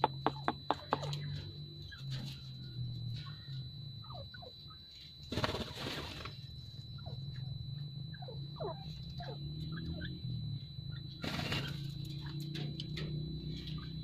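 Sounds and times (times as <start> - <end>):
wings flapping and scuffling: 5.2 - 6.5, 11.2 - 12.5.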